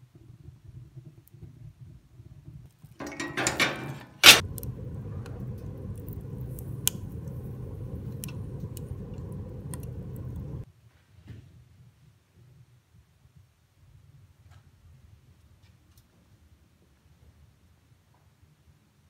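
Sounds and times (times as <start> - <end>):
fire burning with low rumble: 0.0 - 10.7
fire crackling: 2.4 - 10.7
metal stove door scraping: 3.0 - 10.6
stove door clanging shut: 3.0 - 10.6.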